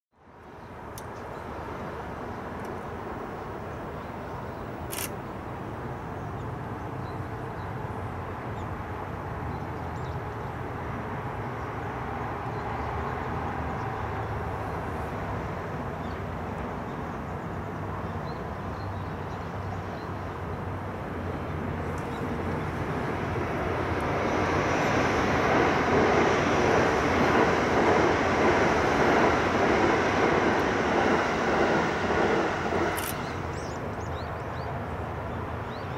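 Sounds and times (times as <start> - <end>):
rushing noise: 21.5 - 34.0.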